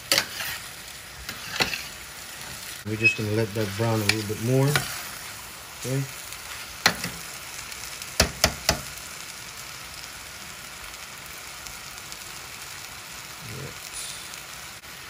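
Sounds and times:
chicken sizzling in pan: 0.0 - 15.0
metal spoon knocking pan: 8.2 - 8.9.

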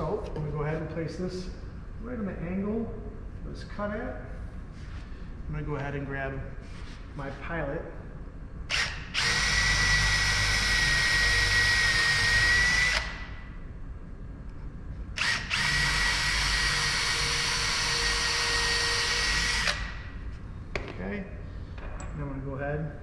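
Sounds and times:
cordless drill whining: 8.7 - 13.2, 15.2 - 19.9.

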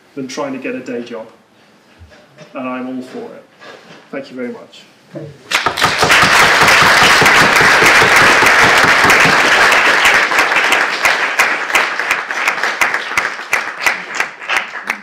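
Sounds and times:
audience applauding: 5.5 - 15.0.

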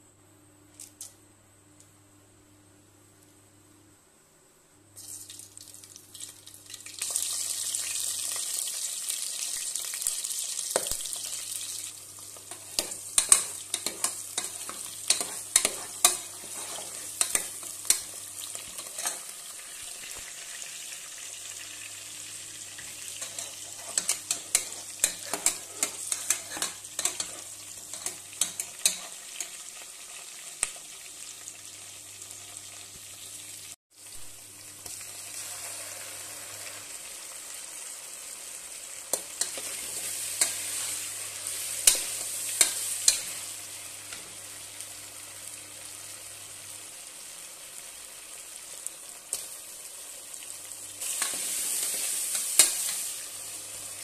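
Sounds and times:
onions sizzling in hot oil: 5.0 - 54.0
metal ladle scraping a pot: 13.2 - 17.5, 23.2 - 29.1.

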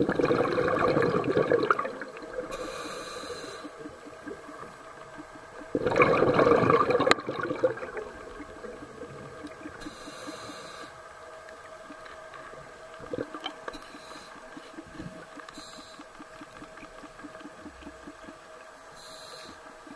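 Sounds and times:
underwater hum: 0.0 - 19.9
scuba regulator hiss: 2.5 - 3.8, 9.8 - 11.0, 19.0 - 19.7.

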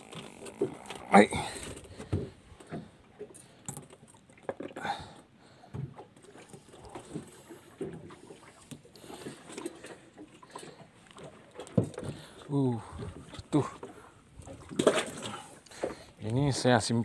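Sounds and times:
knocks and thumps on boat: 0.1 - 3.0, 5.7 - 9.7, 10.5 - 16.7.

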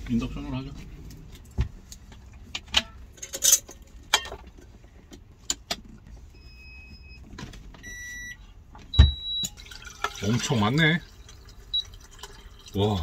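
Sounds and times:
cooktop electronic beep: 7.8 - 8.4, 9.0 - 9.6
dull thump: 9.0 - 9.2.

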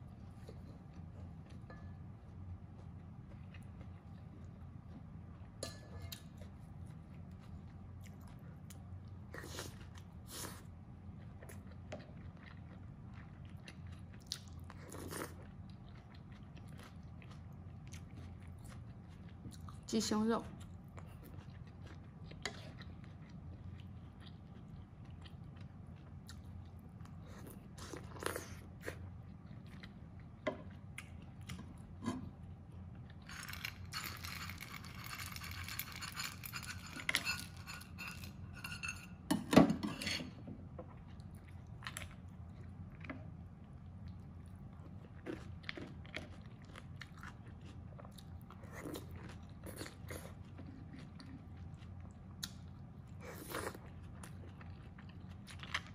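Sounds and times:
chewing: 0.1 - 38.4, 40.8 - 55.9
peanuts rattling out of metal bowl: 33.3 - 38.4.

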